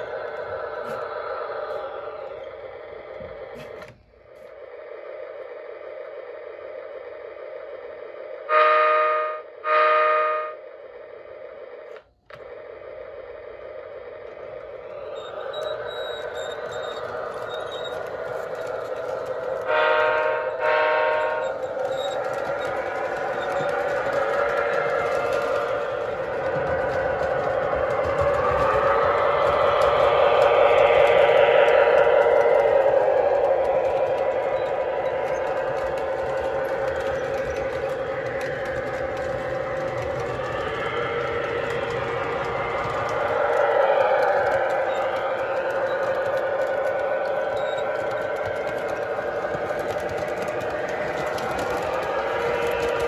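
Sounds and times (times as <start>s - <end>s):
model train running on track: 0.0s - 53.0s
train horn blasts: 8.5s - 10.6s, 19.6s - 21.6s.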